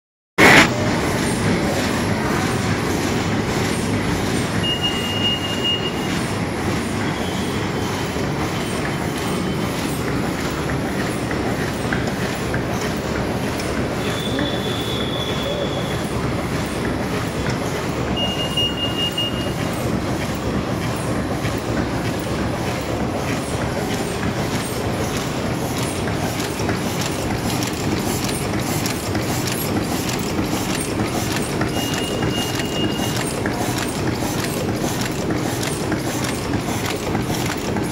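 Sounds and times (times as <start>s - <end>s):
paper cup machine rattling: 0.6s - 37.9s
high steady tone: 4.6s - 6.4s, 17.9s - 21.2s.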